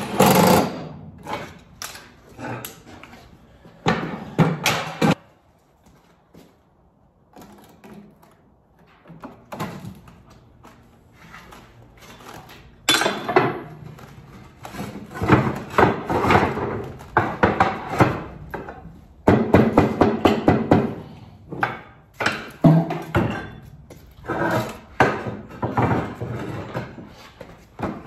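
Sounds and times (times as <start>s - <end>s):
hammer knocking on roof tiles: 17.2s - 23.4s.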